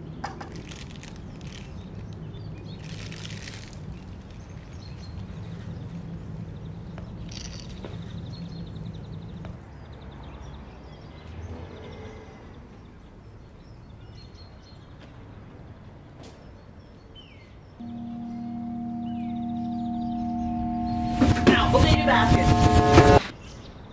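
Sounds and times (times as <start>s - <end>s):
distant traffic: 0.0s - 13.6s, 17.8s - 23.7s
bird chirps: 17.2s - 21.6s
held musical drone: 17.8s - 23.3s.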